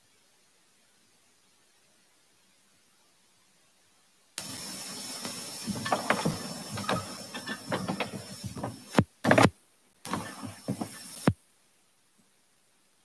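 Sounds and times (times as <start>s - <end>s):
hiss: 0.0s - 11.4s
thurible chains and lid clinking: 4.4s - 8.9s.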